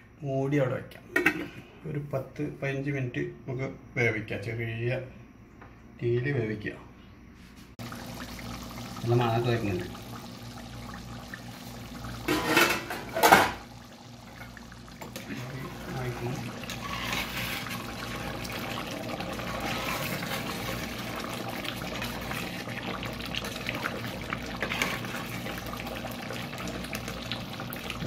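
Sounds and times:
curry simmering: 7.8 - 28.0
water pouring into a pot: 7.8 - 28.0
ladle stirring: 14.2 - 26.8.

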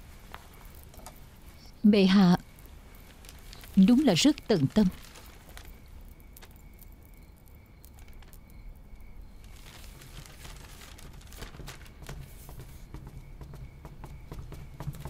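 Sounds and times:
paper rustling: 3.1 - 5.8, 9.4 - 13.1.

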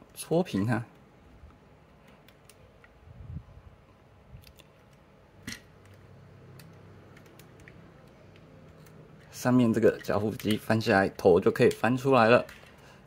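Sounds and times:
plastic toy parts clicking: 4.4 - 12.8.

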